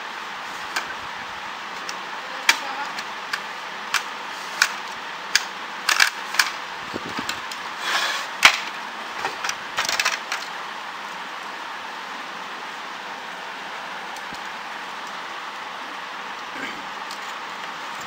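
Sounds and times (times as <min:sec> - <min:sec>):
steady hiss: 0:00.0 - 0:18.0
plastic parts clicking and knocking: 0:01.8 - 0:06.6, 0:08.4 - 0:10.5.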